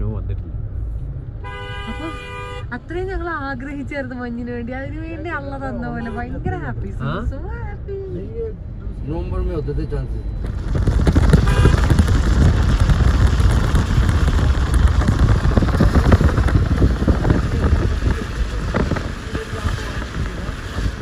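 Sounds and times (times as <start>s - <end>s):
wind buffeting microphone: 10.4s - 21.0s.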